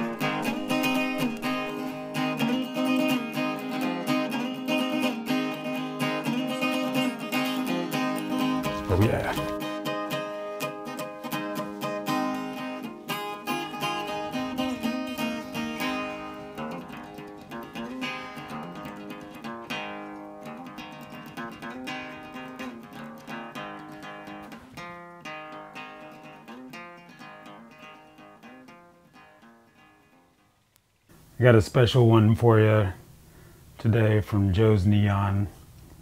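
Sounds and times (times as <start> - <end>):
picked acoustic guitar melody: 0.0 - 31.2.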